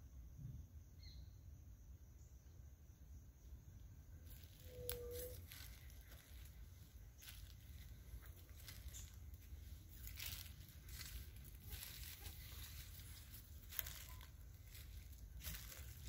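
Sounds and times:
faint rustles and crackles: 0:04.2 - 0:16.0.

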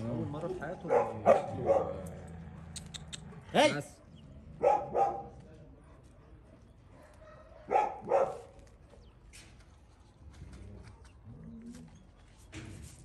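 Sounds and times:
dog barking: 0:00.8 - 0:02.0, 0:04.0 - 0:06.1, 0:06.9 - 0:08.6.

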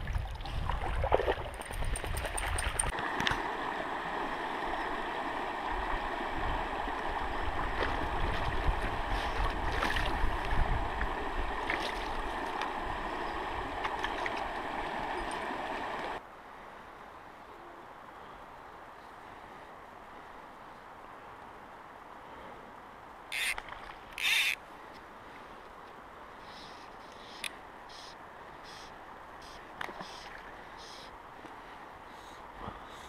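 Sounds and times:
river flowing over rocks: 0:02.8 - 0:16.2.

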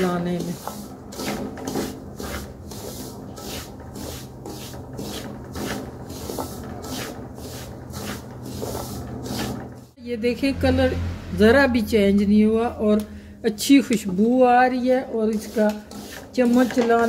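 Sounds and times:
wooden spatula stirring in metal pan: 0:00.0 - 0:10.0, 0:13.7 - 0:17.0.

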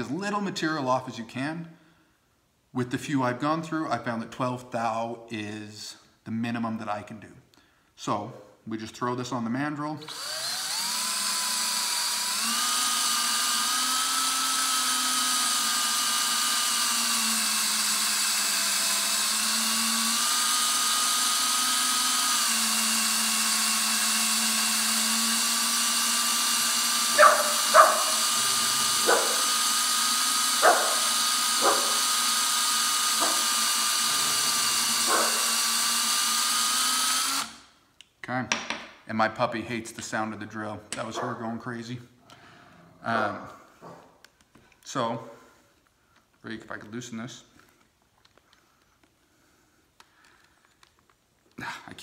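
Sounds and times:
cordless drill whining: 0:10.1 - 0:37.7
metal cutter on brass: 0:26.8 - 0:35.6
puppy barking: 0:27.2 - 0:28.3, 0:29.0 - 0:29.5, 0:30.6 - 0:32.0, 0:35.1 - 0:35.5.

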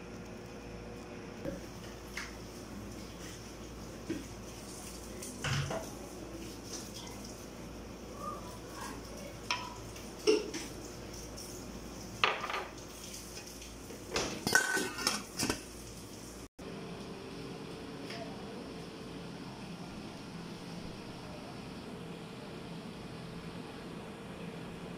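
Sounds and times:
glass cup clinking on metal pot: 0:14.4 - 0:15.2
steel lid clanking on pot: 0:14.4 - 0:15.6.

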